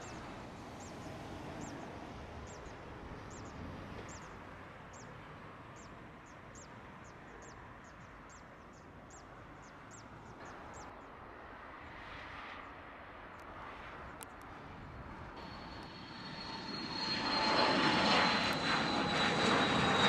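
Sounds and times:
distant airport rumble: 0.0 - 20.0
rushing jet engine: 15.0 - 20.0.

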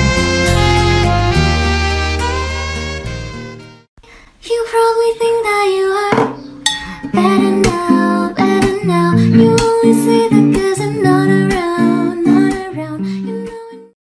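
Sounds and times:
plucked notes under melody: 6.4 - 13.6.

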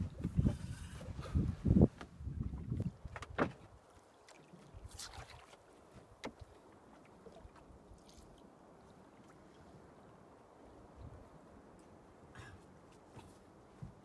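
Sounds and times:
wash of sea and wind: 0.0 - 14.0
water thumping against hull: 2.0 - 3.8, 4.8 - 6.6.

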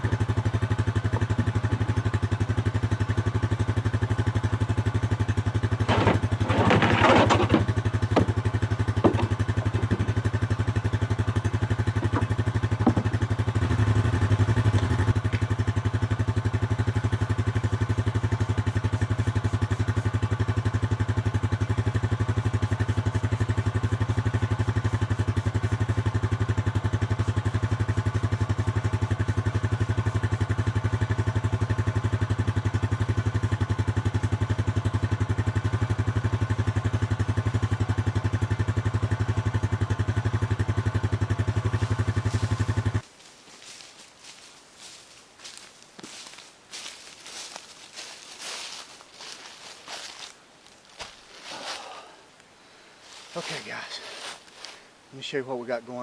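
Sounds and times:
vehicle engine idling: 0.0 - 56.0
clattering: 5.8 - 8.4.

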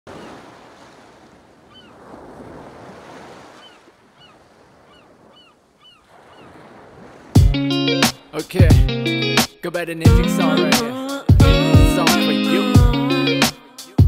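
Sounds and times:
ocean surf washing onto shore: 0.1 - 5.4, 6.1 - 7.5.

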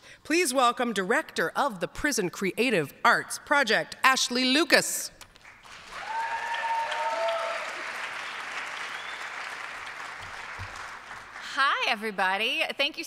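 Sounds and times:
audience applauding: 5.4 - 11.5.

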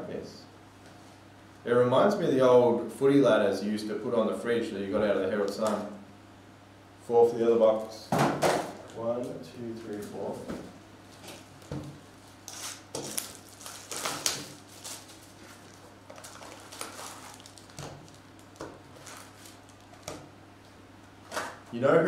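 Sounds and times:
foil packs rustling and crinkling: 11.2 - 20.2.

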